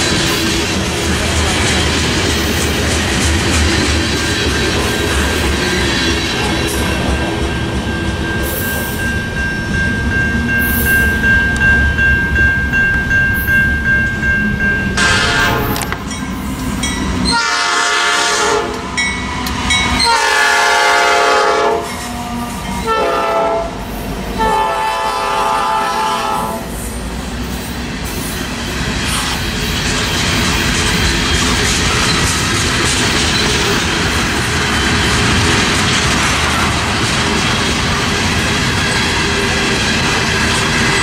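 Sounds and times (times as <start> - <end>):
wheels clattering on rails: 0.0 - 17.4, 27.5 - 41.0
heavy rumble of locomotives: 0.0 - 41.0
steady high tone: 4.4 - 17.4
train air horn blasts: 15.0 - 15.9, 17.3 - 18.8, 20.0 - 26.7.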